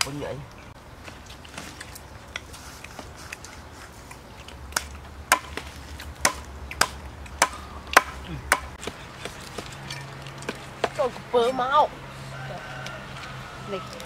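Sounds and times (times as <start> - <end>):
cleaver chopping: 4.7 - 9.8.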